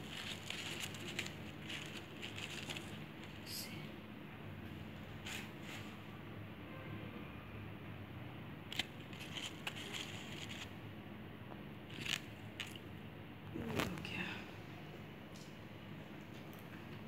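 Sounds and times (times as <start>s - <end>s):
crepe paper rustling: 0.0s - 3.5s, 5.2s - 5.6s, 8.7s - 10.7s.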